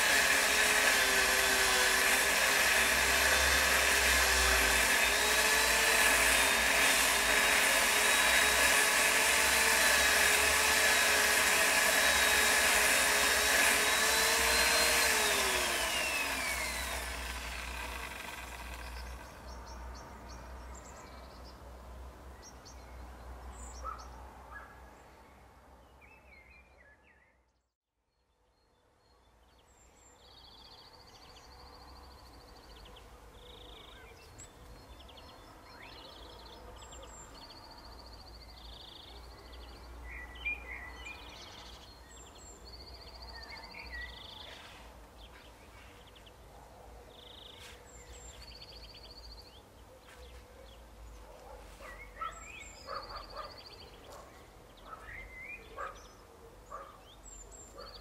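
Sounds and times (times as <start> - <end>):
power saw motor winding down: 0.0 - 19.4
faint birds chirping: 22.3 - 58.0.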